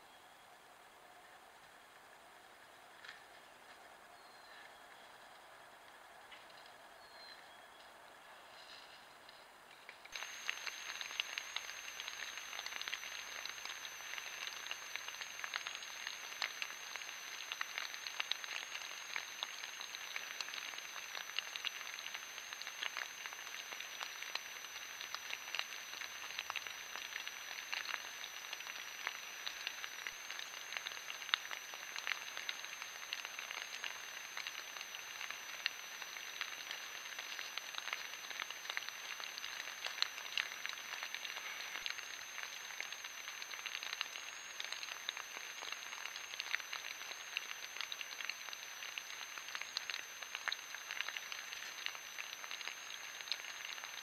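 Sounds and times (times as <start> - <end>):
faint high-pitched electronic whine: 0.0 - 54.0
light rain pattering on leaves: 1.2 - 54.0.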